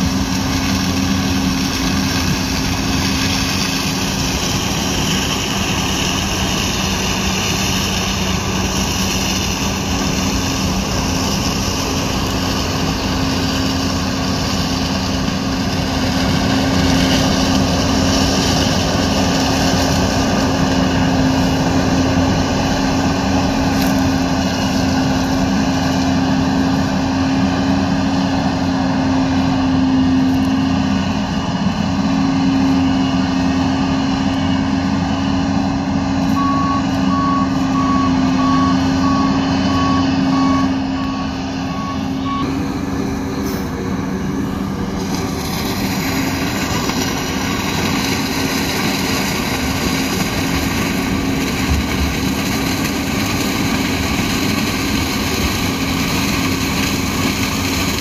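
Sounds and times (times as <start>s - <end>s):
combine harvester engine drone: 0.0s - 58.0s.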